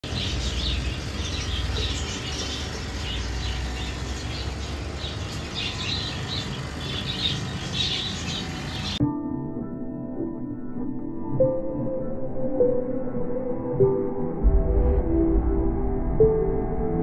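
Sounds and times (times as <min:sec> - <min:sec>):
small birds chirping: 0:00.0 - 0:09.0
low rumble: 0:14.4 - 0:17.0.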